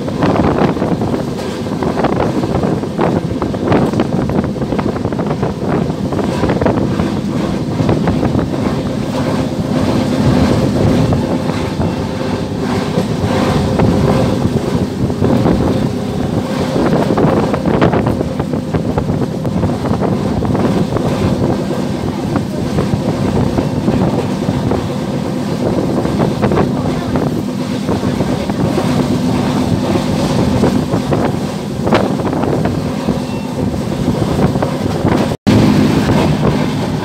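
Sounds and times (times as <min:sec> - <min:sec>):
train carriage running on rails: 0:00.0 - 0:37.0
wind buffeting microphone: 0:00.0 - 0:37.0.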